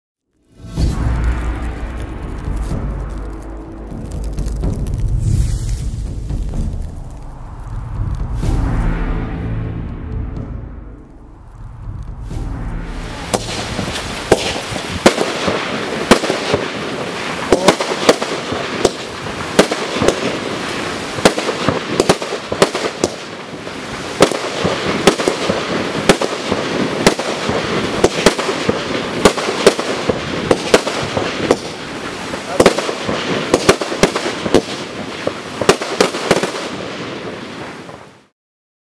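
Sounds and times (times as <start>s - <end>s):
crackle of strobing stars: 0.3s - 15.8s
firework shots: 12.2s - 38.2s.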